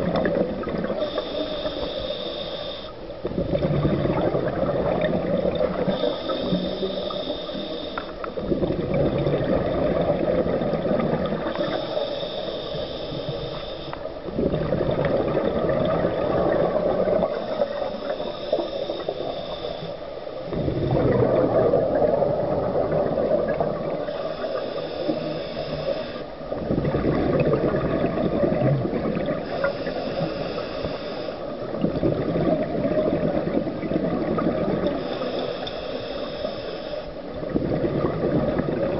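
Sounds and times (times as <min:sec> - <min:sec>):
scuba regulator hissing inhale: 0:00.9 - 0:03.1, 0:05.7 - 0:08.5, 0:11.3 - 0:14.1, 0:16.4 - 0:21.0, 0:23.8 - 0:26.5, 0:29.4 - 0:31.8, 0:34.8 - 0:37.4
bubbling exhale underwater: 0:03.3 - 0:06.5, 0:08.4 - 0:11.5, 0:14.3 - 0:17.8, 0:20.6 - 0:24.0, 0:26.6 - 0:29.5, 0:37.4 - 0:38.9.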